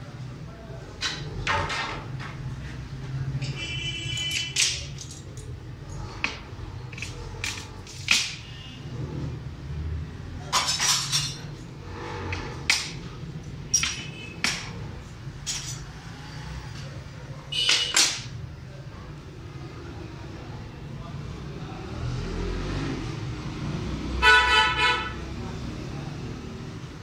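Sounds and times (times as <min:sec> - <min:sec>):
glass pieces clinking: 0:13.7 - 0:14.2.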